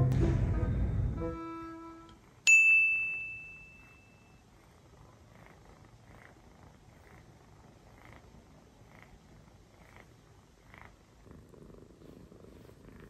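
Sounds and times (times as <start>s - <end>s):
music track: 0.0s - 2.2s
bright bell-like ding: 2.5s - 4.3s
faint cat purr: 3.8s - 13.0s.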